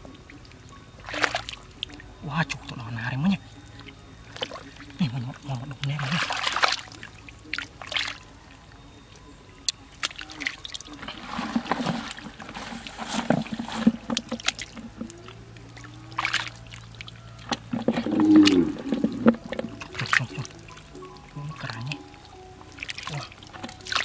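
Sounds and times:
muddy water sloshing and splashing: 0:00.0 - 0:08.7, 0:09.6 - 0:24.0
short low calls: 0:17.6 - 0:22.1.

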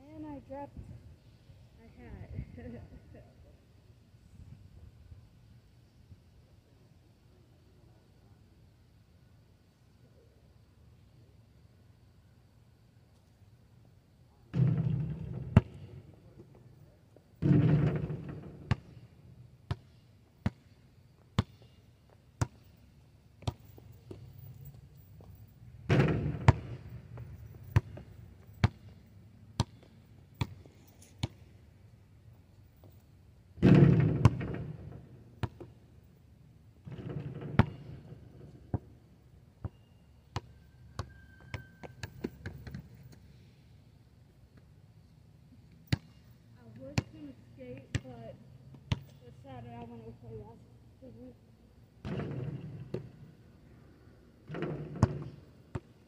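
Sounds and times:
basketball bouncing on asphalt: 0:14.5 - 0:16.6, 0:17.4 - 0:22.7, 0:23.4 - 0:31.5, 0:33.6 - 0:35.9, 0:36.8 - 0:43.3, 0:45.9 - 0:50.1, 0:52.0 - 0:53.5, 0:54.4 - 0:56.0
ball hitting rim and backboard: 0:17.4 - 0:18.9, 0:25.9 - 0:28.9, 0:33.6 - 0:35.7, 0:36.8 - 0:38.9, 0:52.0 - 0:53.2, 0:54.4 - 0:55.9.

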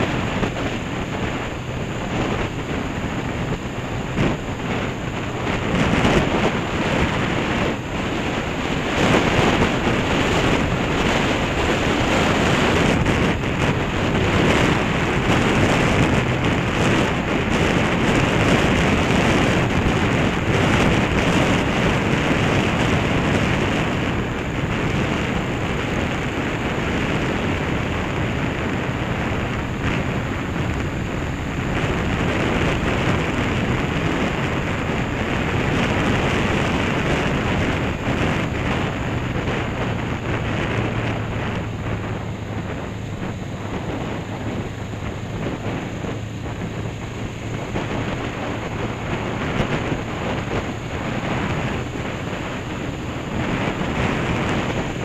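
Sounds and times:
motorcycle engine low hum: 0:00.0 - 0:55.0
wind buffeting microphone: 0:00.0 - 0:55.0.

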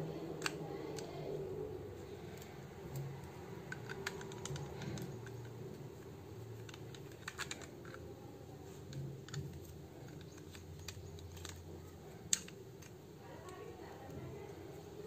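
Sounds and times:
small plastic clicks and taps: 0:00.4 - 0:01.1, 0:02.3 - 0:08.0.

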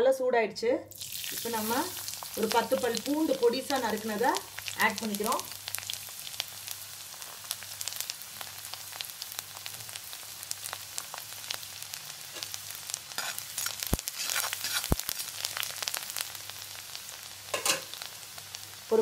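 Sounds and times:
garlic sizzling in hot oil: 0:00.9 - 0:19.0
spatula stirring in a wok: 0:09.6 - 0:16.6.

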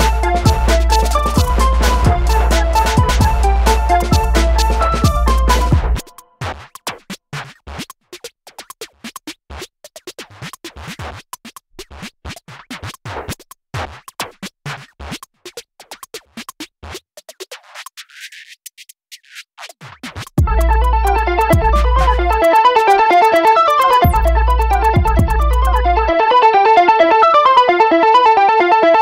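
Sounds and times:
electronic music clicks and hits: 0:00.0 - 0:06.3, 0:20.4 - 0:27.3.

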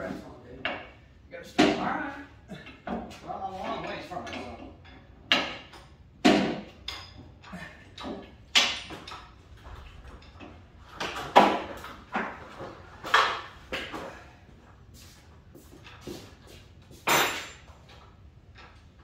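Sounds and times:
stepladder knocks and clunks: 0:04.2 - 0:14.1.

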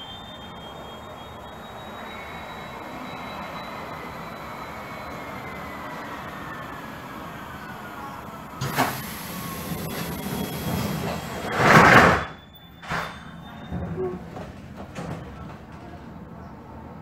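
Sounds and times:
air rushing hiss: 0:08.6 - 0:11.5.

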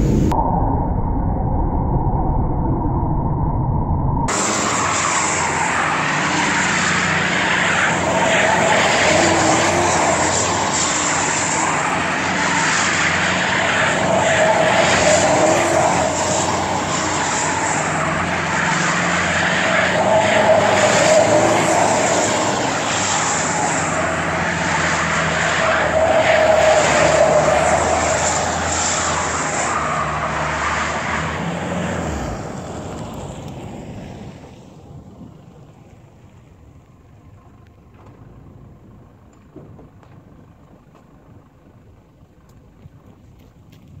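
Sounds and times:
diesel engine at high revs: 0:04.3 - 0:34.6.

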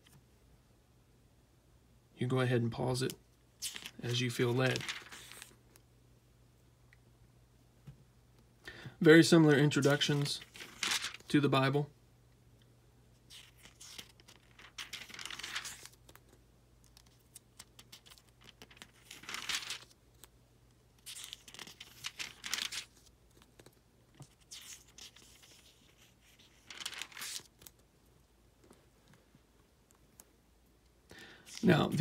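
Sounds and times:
paper pages turning: 0:03.6 - 0:05.6, 0:09.8 - 0:11.4, 0:13.3 - 0:20.3, 0:21.0 - 0:27.8, 0:31.4 - 0:32.0.

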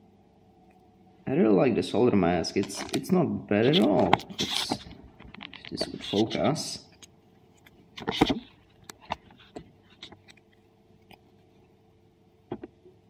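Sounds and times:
fingers handling circuit board: 0:03.6 - 0:11.4.

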